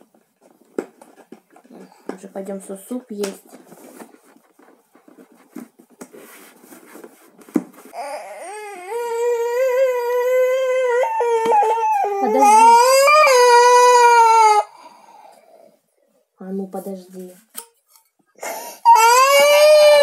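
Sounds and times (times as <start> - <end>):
toddler crying: 8.0 - 14.8, 18.4 - 20.0.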